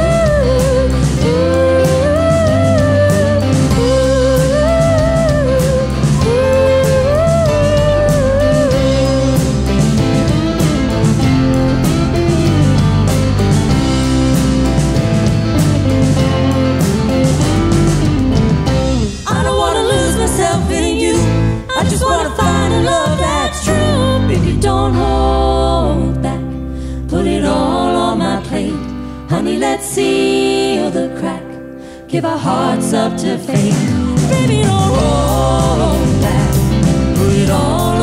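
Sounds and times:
live band playing: 0.0 - 26.4, 32.4 - 38.0
several voices singing: 19.2 - 38.0.

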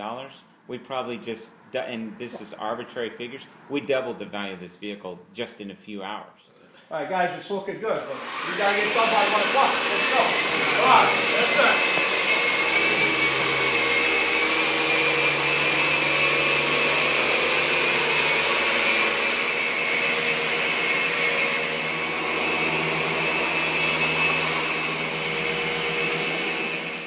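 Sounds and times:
vacuum cleaner running: 8.0 - 27.0.

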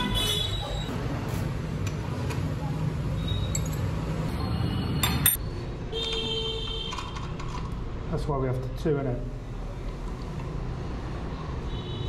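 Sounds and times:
spanners clinking on metal: 3.4 - 3.9.

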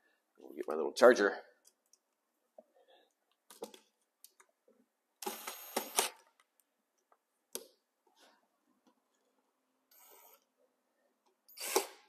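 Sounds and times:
impact driver driving screw: 11.5 - 12.0.

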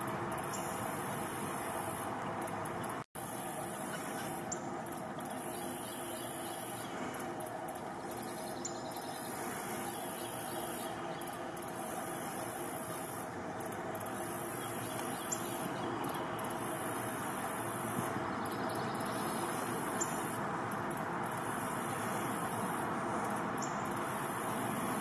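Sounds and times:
faint bird chirps: 3.2 - 7.4, 8.0 - 16.8.

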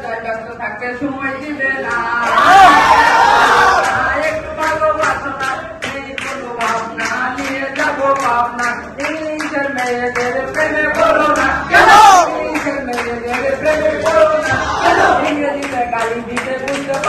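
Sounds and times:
voices singing: 1.6 - 17.0
people clapping in rhythm: 1.7 - 17.0.

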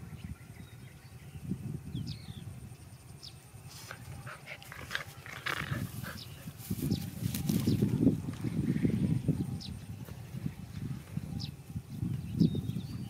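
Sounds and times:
dogs snuffling: 3.7 - 8.5
dogs growling: 3.9 - 6.6.

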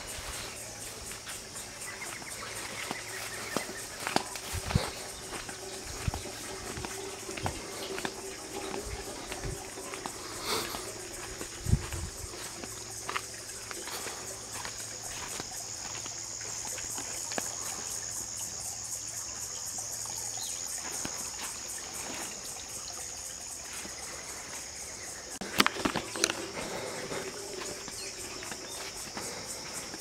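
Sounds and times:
footsteps on soil: 0.0 - 18.0, 25.4 - 30.0
insects trilling: 0.0 - 30.0.

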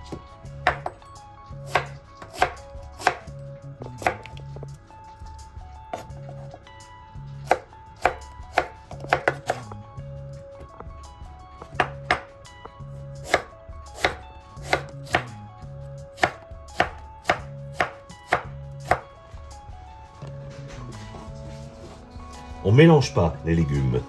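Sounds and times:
knife chopping on cutting board: 1.7 - 4.7, 5.9 - 6.6, 7.4 - 9.8, 11.6 - 15.4, 16.2 - 19.1.

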